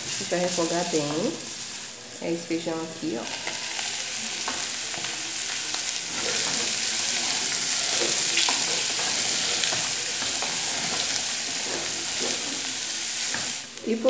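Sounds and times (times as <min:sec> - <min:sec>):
peas sizzling in a pot: 0:00.0 - 0:14.0
wooden spoon scraping a pot: 0:03.2 - 0:13.7.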